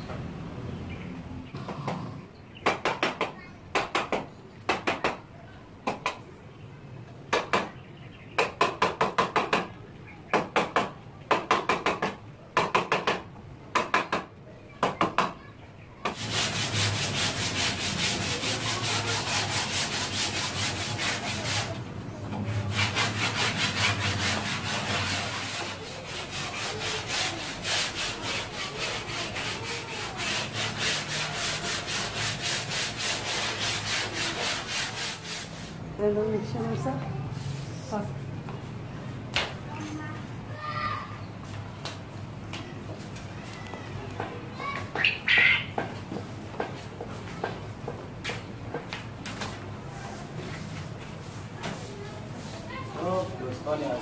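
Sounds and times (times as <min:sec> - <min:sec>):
hand sanding wood: 0:16.1 - 0:35.8, 0:50.1 - 0:54.0.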